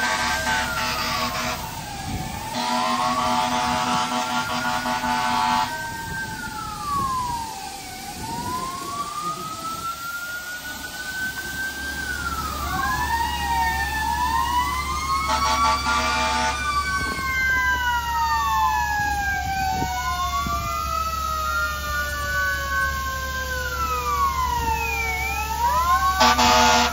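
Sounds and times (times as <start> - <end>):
air horn blast: 0.0 - 1.7, 2.5 - 5.7, 15.3 - 16.6, 26.2 - 26.9
fire engine sirens wailing: 0.0 - 26.9.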